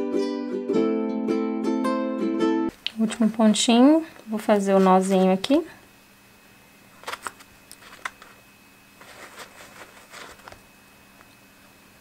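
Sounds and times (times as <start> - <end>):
fabric rustling: 9.0 - 10.6.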